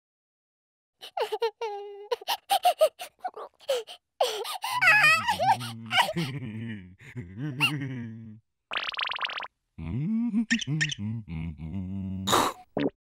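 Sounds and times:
low groaning voice: 4.8s - 8.4s, 9.8s - 12.6s
cartoon character gibberish: 10.4s - 11.2s.

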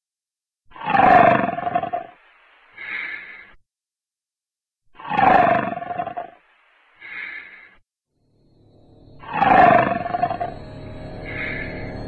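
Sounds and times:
eerie music: 8.2s - 12.0s
roars with falling pitch: 9.2s - 12.0s.

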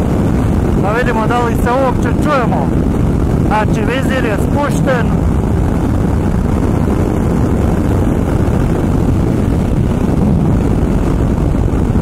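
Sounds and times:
wind rushing: 0.0s - 12.0s
motorcycle engine cruising: 4.4s - 12.0s.

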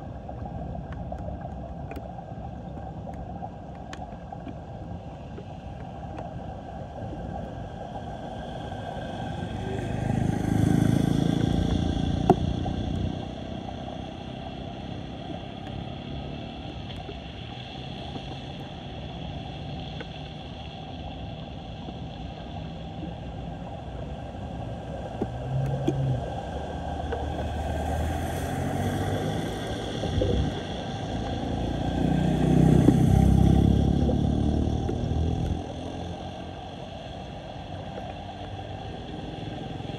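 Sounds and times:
floodwater rushing down drain: 0.0s - 39.9s
vehicles driving through water: 6.5s - 39.9s.

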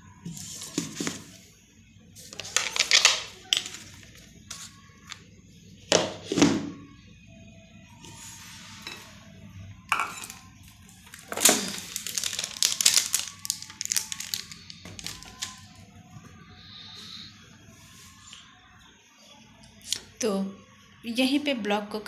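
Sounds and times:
plastic containers clicking and clattering: 0.4s - 1.4s, 2.3s - 4.2s, 11.0s - 15.7s.

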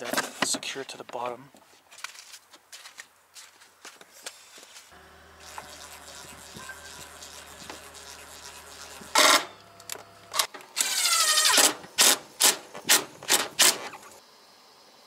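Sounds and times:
cordless drill driving screws: 5.3s - 14.1s.

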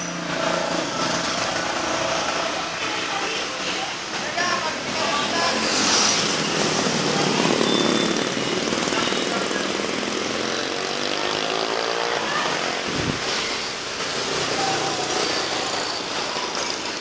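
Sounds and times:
cars passing: 0.0s - 17.0s
motorcycles passing: 0.0s - 17.0s.

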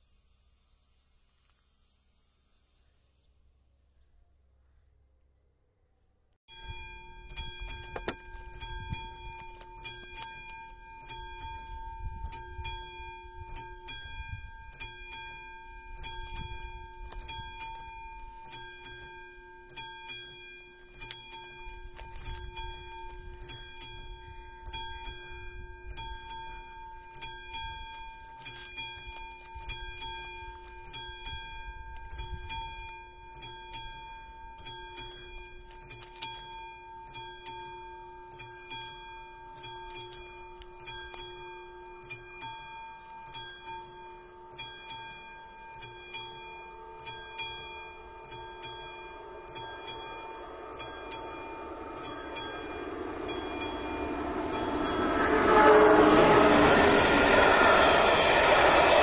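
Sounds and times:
crossing warning bell ringing: 6.5s - 59.0s
low rumble: 49.2s - 59.0s.

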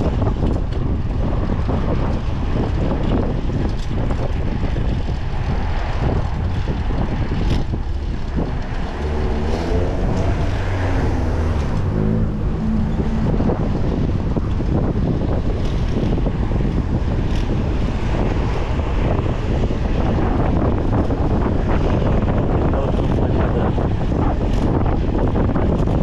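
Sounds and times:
wind and road noise: 0.0s - 26.0s
vehicle engine rising in pitch: 7.3s - 16.1s.

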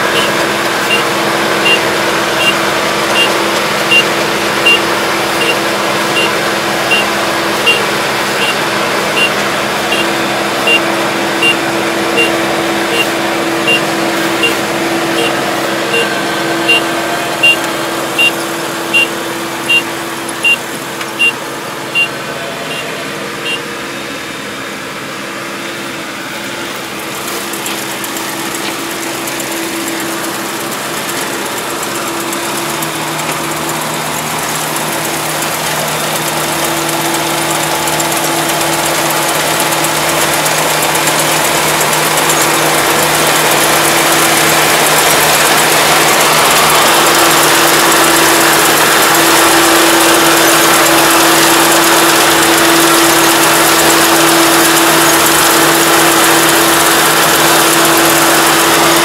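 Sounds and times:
combine harvester humming: 0.0s - 59.0s
high beeps: 0.1s - 1.8s, 2.4s - 4.8s, 5.4s - 5.6s, 6.2s - 8.6s, 9.2s - 11.6s, 12.2s - 19.1s, 19.7s - 20.6s, 21.2s - 22.1s, 22.7s - 23.6s.

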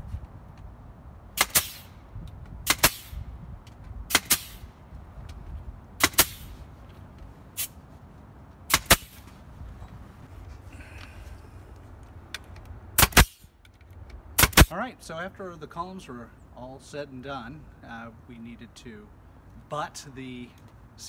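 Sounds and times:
nail gun shots: 1.4s - 1.9s, 2.6s - 3.2s, 4.1s - 4.7s, 6.0s - 6.5s, 8.7s - 9.2s, 13.0s - 13.5s, 14.4s - 14.7s.

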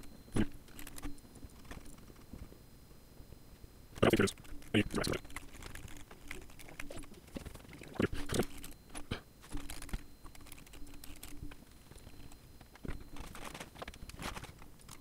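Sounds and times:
computer keyboard typing: 4.0s - 8.8s, 9.6s - 12.4s.

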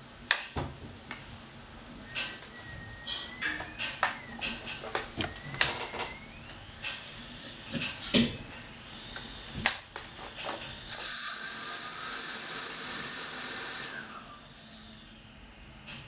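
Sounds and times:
drone motors whining: 2.0s - 7.8s, 10.8s - 15.8s.

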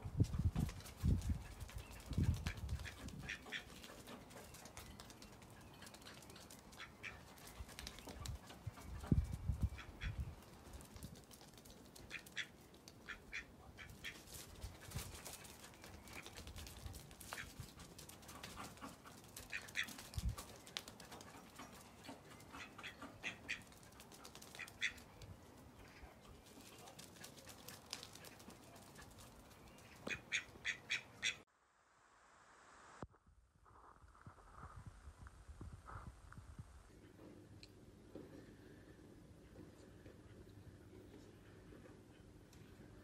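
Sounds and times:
duck quacking: 2.5s - 3.8s, 12.1s - 14.2s, 18.7s - 20.0s, 22.5s - 23.7s, 24.5s - 25.0s, 30.0s - 31.4s.

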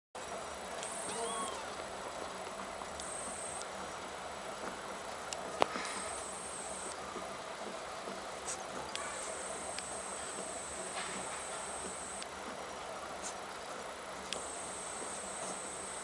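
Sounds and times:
steady hiss: 0.2s - 16.0s
high thin insect trilling: 0.8s - 1.8s, 3.0s - 3.6s.

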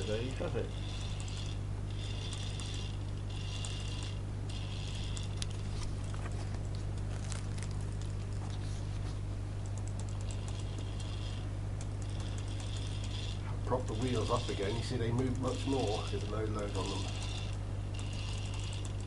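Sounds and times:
rhythmic ratchet clicking: 0.0s - 5.6s, 9.6s - 19.0s
plastic gears clicking and whirring: 0.0s - 6.2s, 9.8s - 19.0s
motor low hum: 0.0s - 19.0s.

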